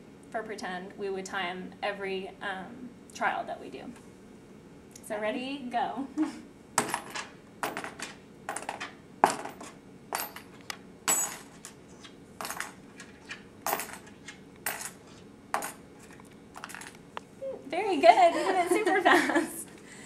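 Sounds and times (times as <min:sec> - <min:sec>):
metal objects dropping into a box: 0:06.8 - 0:11.8, 0:12.4 - 0:17.0.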